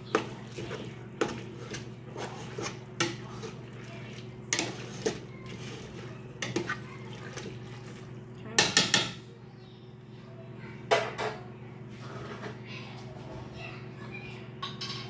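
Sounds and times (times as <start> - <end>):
spoon stirring sauce in pot: 0.0 - 9.0
spoon knocking on pot: 8.6 - 9.2.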